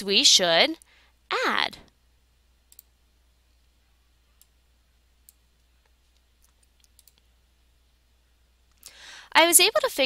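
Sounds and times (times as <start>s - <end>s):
faint computer mouse clicks: 2.7s - 2.9s, 5.2s - 7.3s.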